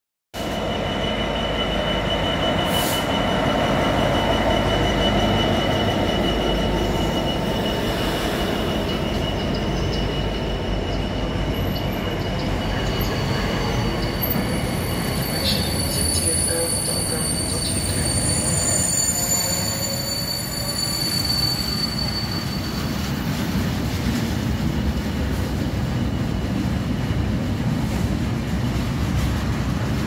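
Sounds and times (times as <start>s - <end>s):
high wheel squeal: 0.4s - 23.8s
diesel locomotive engine: 0.4s - 30.0s
wheels rumbling on rail: 0.4s - 30.0s.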